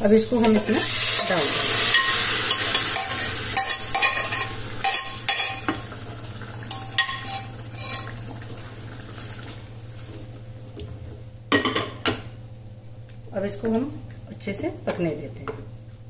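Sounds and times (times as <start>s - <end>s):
masala sizzling: 0.0s - 16.0s
spoon scraping a pan: 0.4s - 5.8s, 6.7s - 8.2s.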